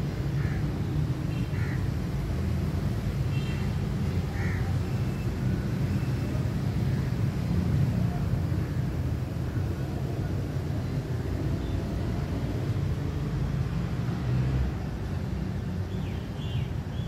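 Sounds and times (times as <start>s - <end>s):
crows cawing: 0.4s - 0.6s, 1.5s - 1.8s, 4.3s - 4.7s.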